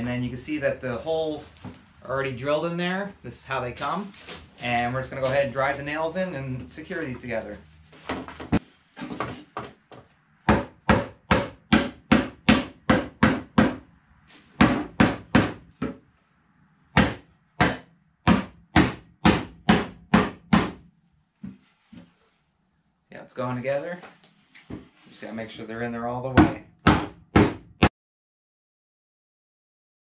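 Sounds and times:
rubber mallet striking wood: 10.4 - 13.9, 14.6 - 16.0, 17.0 - 20.9, 26.4 - 27.9.

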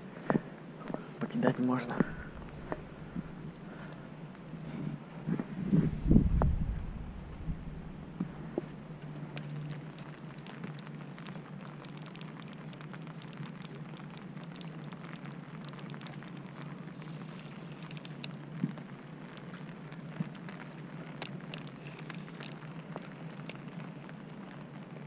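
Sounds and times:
light rain pattering: 0.0 - 25.0
steady low hum: 0.0 - 25.0.

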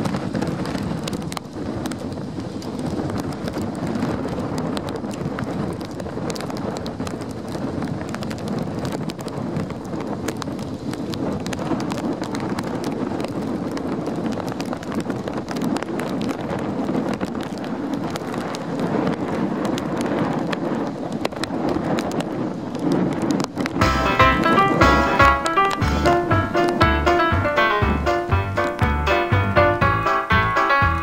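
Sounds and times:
gusty wind on microphone: 0.0 - 31.0.

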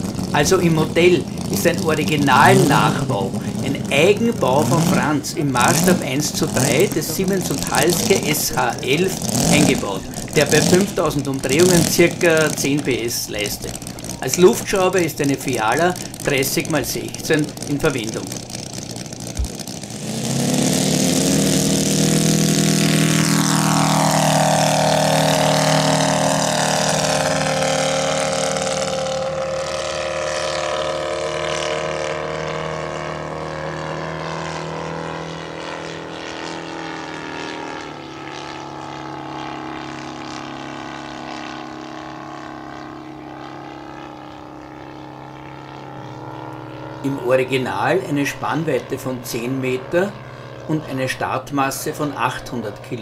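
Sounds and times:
model plane engine passing by: 0.0 - 53.0.

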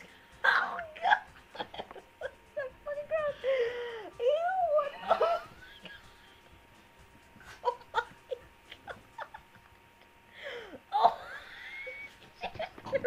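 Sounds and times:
women laughing: 0.4 - 4.0, 4.8 - 6.5, 7.4 - 13.0
squealing laugh: 10.9 - 13.0.

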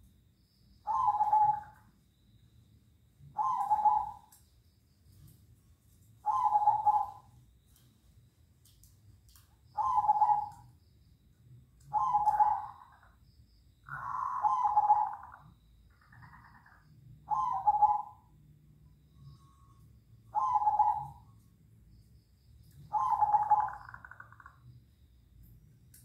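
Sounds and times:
doves cooing: 0.9 - 1.8, 3.3 - 4.3, 6.2 - 7.3, 9.8 - 10.6, 11.9 - 13.1, 13.9 - 18.3, 20.4 - 21.2, 22.8 - 24.6.

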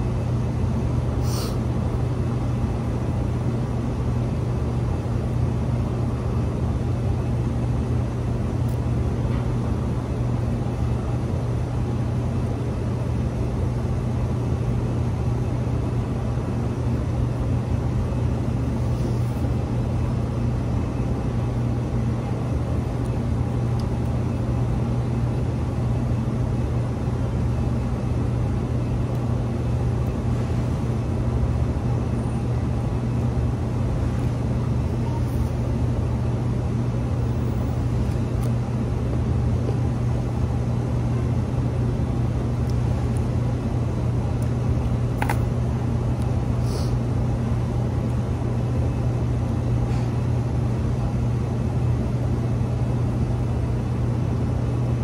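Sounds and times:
low mechanical hum: 0.0 - 55.0.

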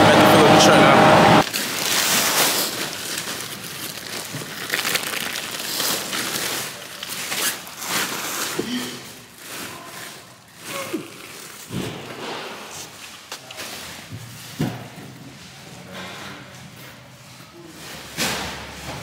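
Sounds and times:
bags rustling and crinkling: 1.4 - 15.6.

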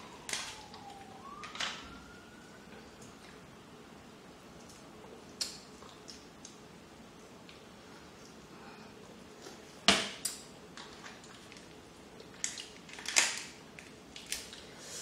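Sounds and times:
crab shells cracking: 12.3 - 14.6.

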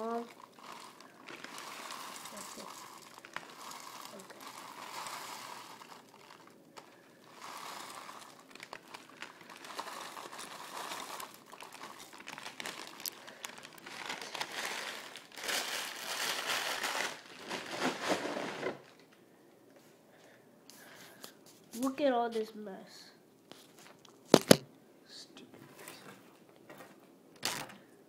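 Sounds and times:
plastic or paper crinkling: 0.0 - 19.0.

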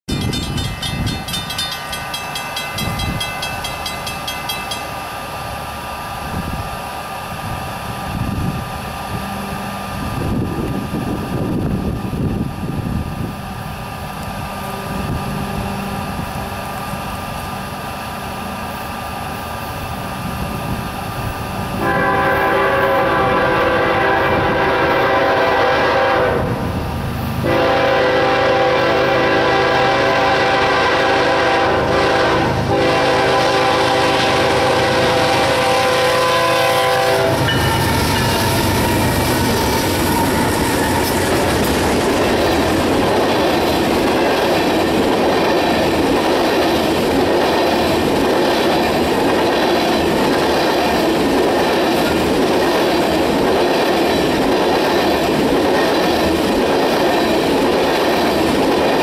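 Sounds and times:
locomotive low rumble: 4.8 - 52.6
train air horn blast: 21.8 - 26.6, 27.4 - 41.5.

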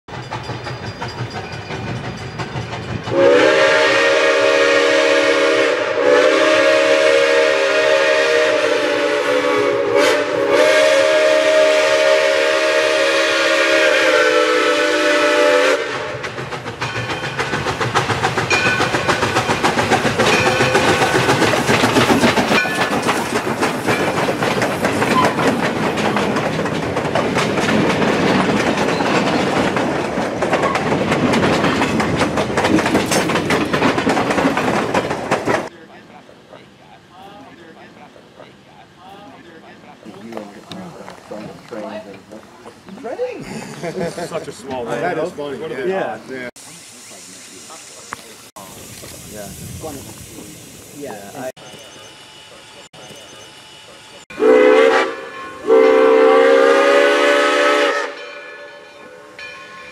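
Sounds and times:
train wheels clicking over rail joints: 0.1 - 4.5, 15.8 - 35.7
steam locomotive whistle: 3.1 - 16.3, 20.2 - 21.4, 51.8 - 59.9.

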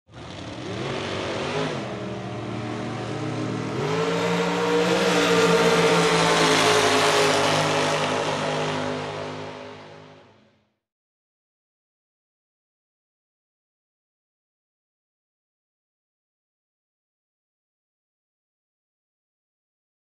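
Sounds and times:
dragster engine revving: 0.1 - 10.0.

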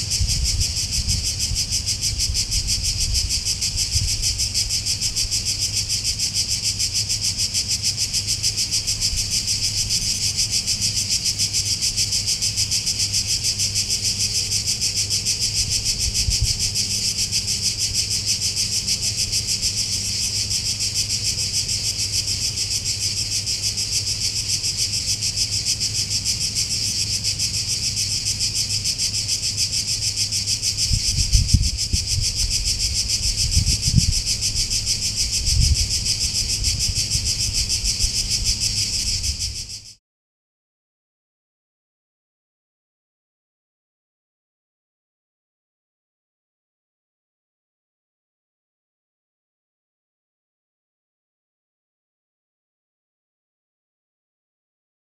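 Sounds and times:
cicadas buzzing: 0.0 - 40.0.

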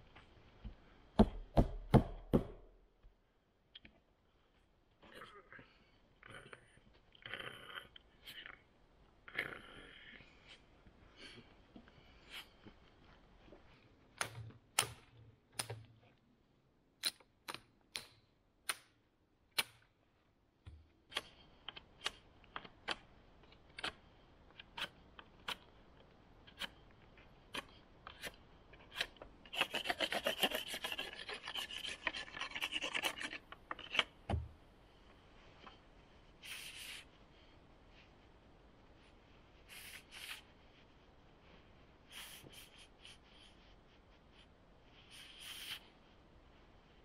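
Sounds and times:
knife scraping wooden stick: 27.6 - 34.1.

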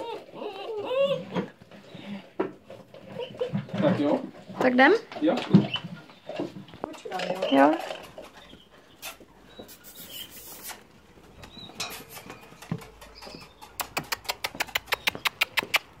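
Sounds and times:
puppy claws clicking on concrete: 6.8 - 16.0.

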